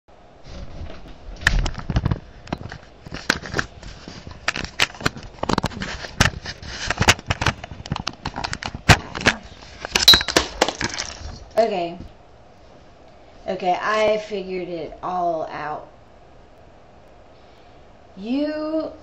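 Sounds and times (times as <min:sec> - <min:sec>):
webcam handling clicks and rustles: 0:01.6 - 0:11.0.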